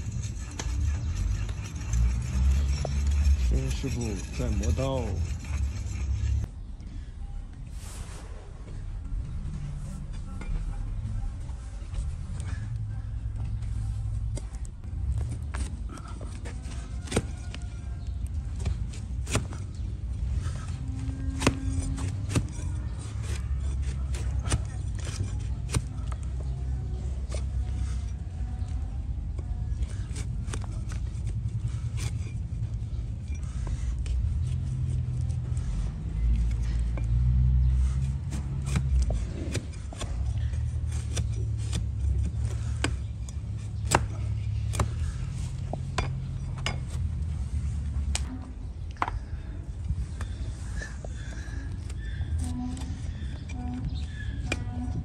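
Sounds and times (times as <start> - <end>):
knife crunching and scraping hoof: 0.0 - 6.5, 14.5 - 48.3, 49.9 - 55.0
low rumble: 5.1 - 16.4.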